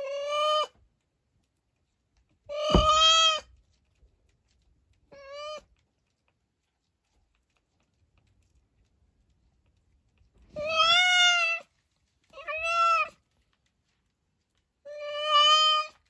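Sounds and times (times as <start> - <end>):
cat meowing: 12.4 - 13.1.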